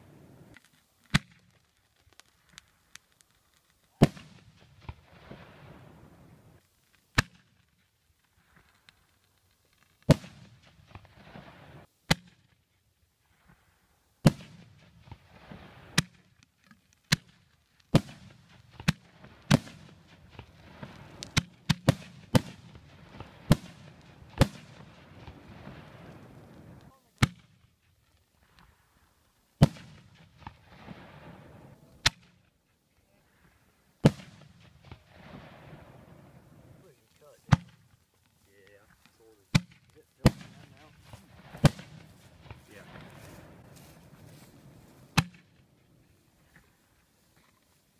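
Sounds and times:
crackle and hiss of fireworks: 0.0 - 47.9
firework bangs: 3.9 - 6.6, 10.0 - 12.4, 17.1 - 27.6, 29.6 - 32.4, 34.0 - 38.0, 39.4 - 45.7.

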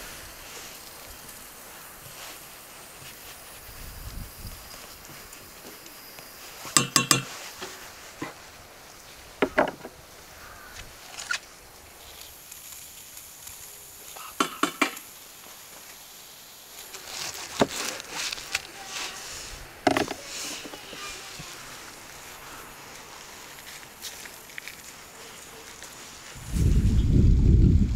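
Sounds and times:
metal cookware clinking: 6.8 - 7.4.

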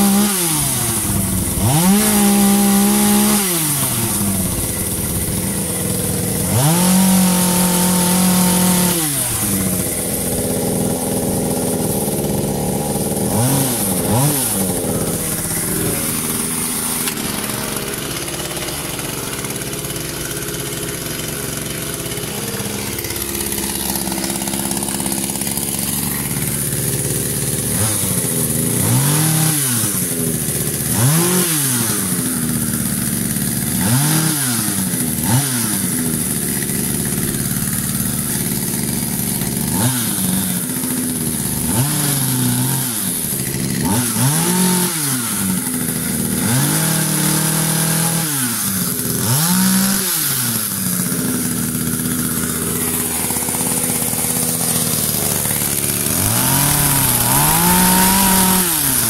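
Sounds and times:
chainsaw engine revving: 0.0 - 59.0.

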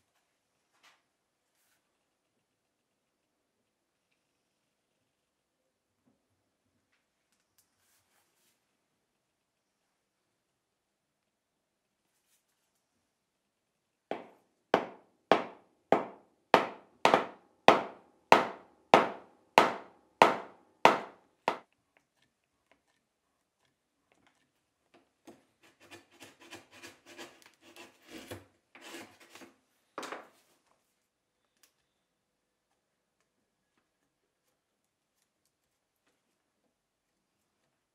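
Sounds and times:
tools scraping and creaking: 25.3 - 29.6.

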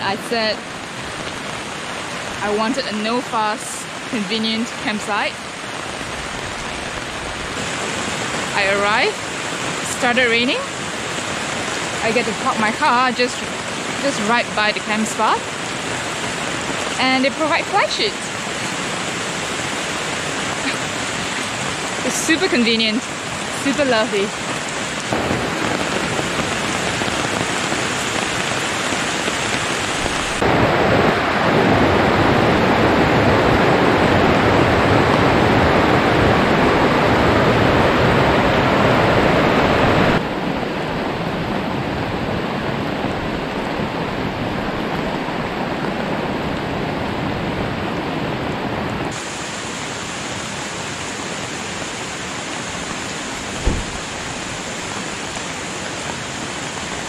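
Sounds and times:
steady rain falling: 0.0 - 57.0
brief thump: 53.6 - 54.1.

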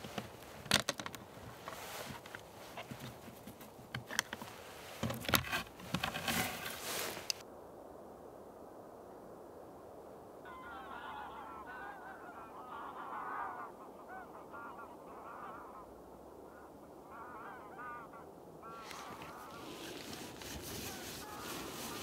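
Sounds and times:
rustling noise: 0.0 - 7.5, 18.8 - 22.0
geese honking: 10.5 - 22.0.

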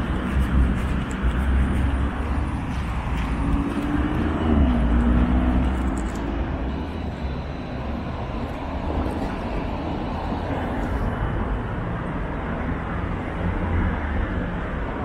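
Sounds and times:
city street traffic rumble: 0.0 - 15.0.

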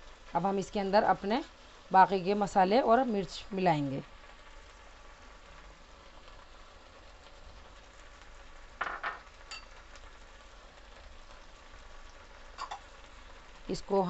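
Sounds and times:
vegetables sizzling in oil: 0.0 - 14.0.

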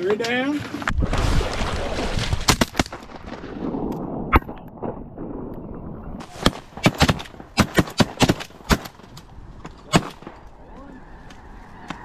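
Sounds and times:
shotgun shots: 6.3 - 9.0, 9.9 - 10.4.

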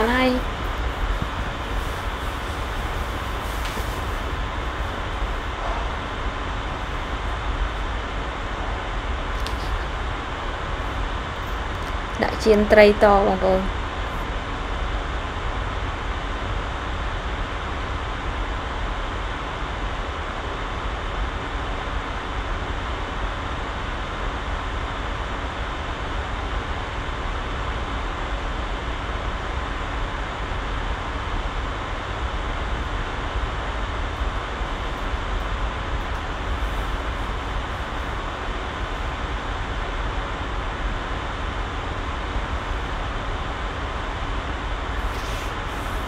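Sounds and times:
low rumble: 0.0 - 22.4.

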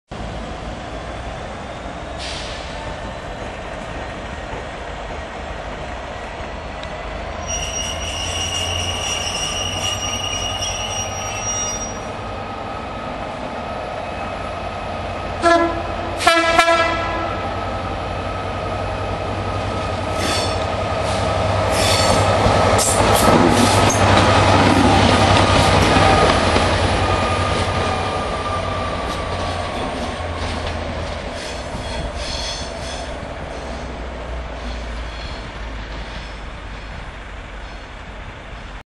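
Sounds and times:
high wheel squeal: 7.4 - 12.2, 20.1 - 23.0, 31.4 - 33.8
diesel locomotive engine running: 11.2 - 38.8
locomotive horn blasts: 15.4 - 17.4.

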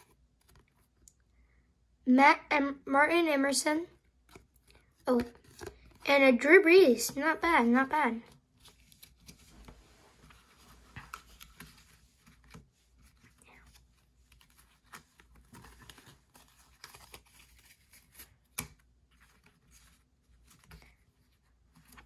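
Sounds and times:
trading cards rustling and clicking: 4.0 - 6.0, 6.9 - 22.0.

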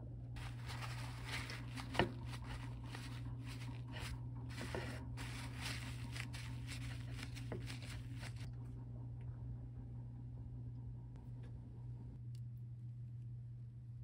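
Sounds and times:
steady low hum: 0.0 - 14.0
paper towels rustling and crinkling: 0.4 - 8.5.

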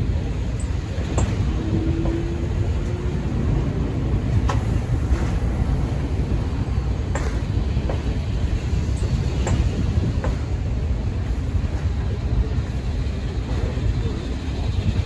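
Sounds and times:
subway train rumbling: 0.0 - 15.0.

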